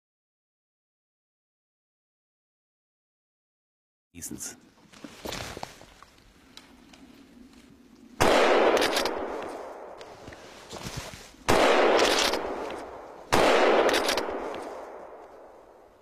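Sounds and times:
echo rolling through forest: 4.2s - 16.0s
rifle shots: 8.2s - 10.0s, 11.4s - 15.9s.

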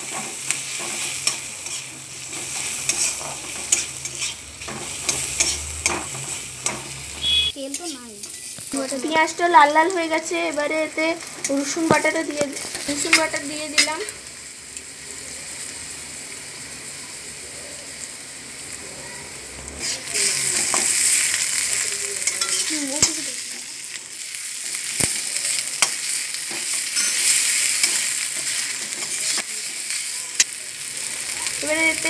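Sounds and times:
spoon stirring and scraping wok: 0.0s - 9.2s, 19.8s - 23.7s, 24.6s - 30.6s
onions sizzling in hot oil: 0.0s - 32.0s.

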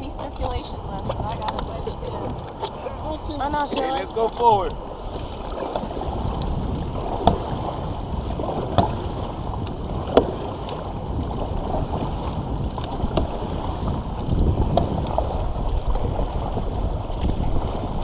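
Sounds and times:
paddles splashing in water: 0.0s - 18.0s
wind on microphone: 0.0s - 18.0s
paddle knocks: 3.6s - 7.8s, 8.4s - 10.9s, 11.7s - 16.3s.

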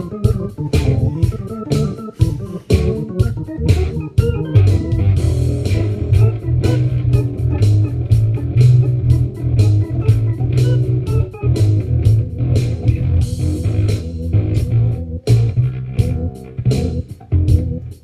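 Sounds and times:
bass line: 0.0s - 18.0s
jazz electric guitar: 0.0s - 18.0s
percussive beat: 0.0s - 18.0s.

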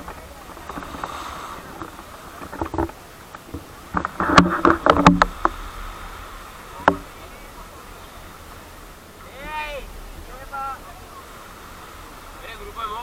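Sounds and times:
steady background hiss: 0.0s - 13.0s
sharp knocks and clatter: 1.8s - 5.6s, 6.8s - 7.1s.

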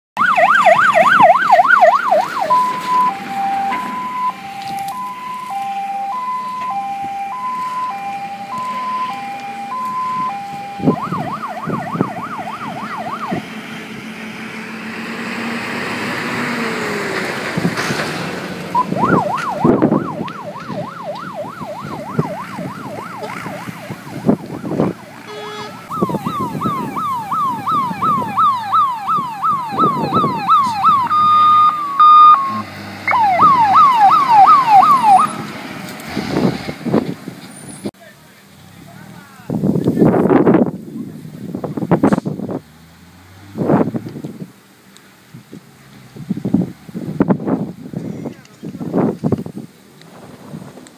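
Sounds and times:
fire engine siren: 0.2s - 37.0s.

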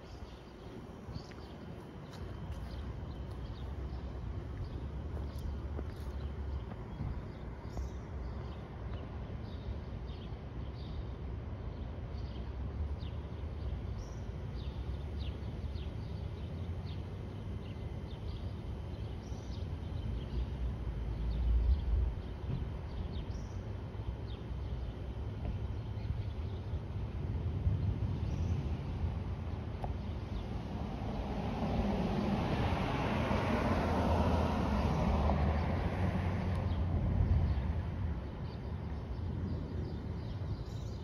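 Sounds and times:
small birds chirping: 0.0s - 11.1s, 11.7s - 27.0s, 36.5s - 41.0s
continuous low rumble: 0.0s - 41.0s.

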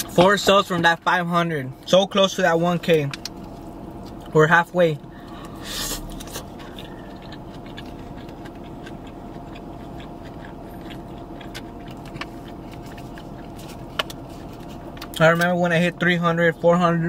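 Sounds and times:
steady low hum: 0.0s - 17.0s
person chewing food: 5.1s - 15.2s.

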